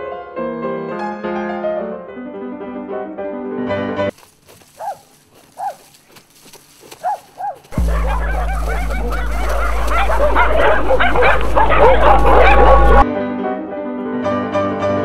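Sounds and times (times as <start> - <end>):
dog barking: 4.7 - 5.9, 7.0 - 13.1
pack of dogs barking and yipping: 4.7 - 6.0, 6.9 - 13.1.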